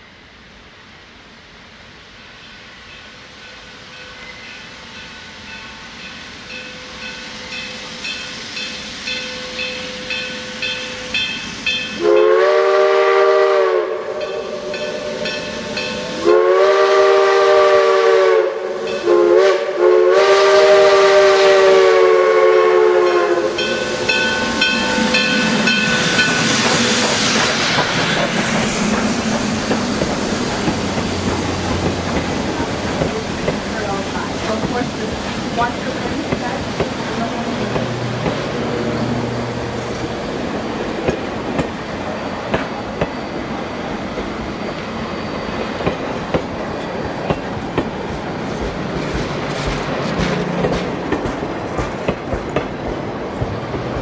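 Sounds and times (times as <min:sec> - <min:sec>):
steam hissing: 0:00.0 - 0:54.0
train rumbling: 0:00.0 - 0:54.0
steam locomotive exhaust beats: 0:01.4 - 0:54.0
steam whistle: 0:11.8 - 0:28.1.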